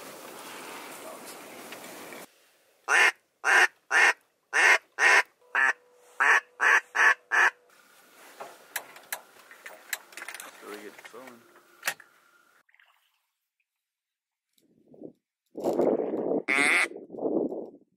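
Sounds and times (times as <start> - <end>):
duck quacking: 2.9 - 7.6, 16.5 - 16.9.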